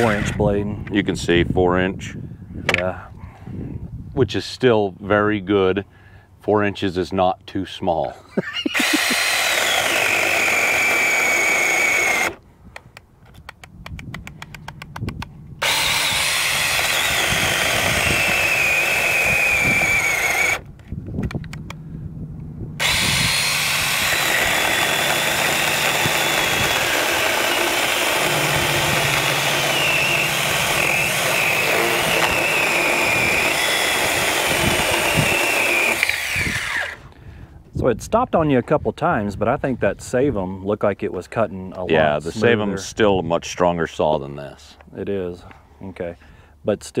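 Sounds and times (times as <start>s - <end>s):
electric chainsaw cutting log: 0.0s - 0.4s, 8.7s - 12.4s, 15.6s - 20.7s, 22.8s - 37.1s.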